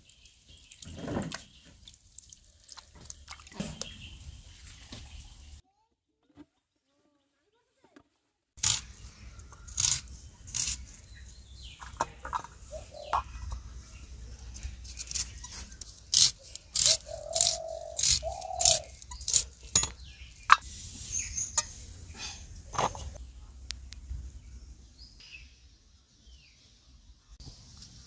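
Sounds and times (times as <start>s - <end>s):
knife crunching through onion: 9.7s - 11.0s, 14.6s - 19.8s.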